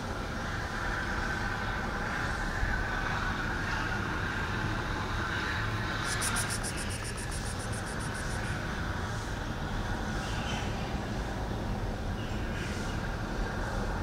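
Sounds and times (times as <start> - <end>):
distant road traffic rumble: 0.0 - 14.0
rapid high-pitched ticking: 6.0 - 8.6.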